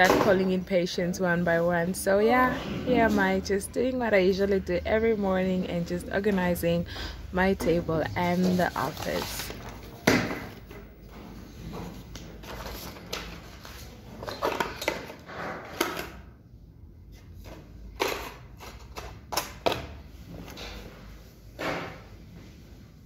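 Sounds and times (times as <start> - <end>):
paper and cardboard rustling: 8.2 - 10.0, 10.8 - 15.1.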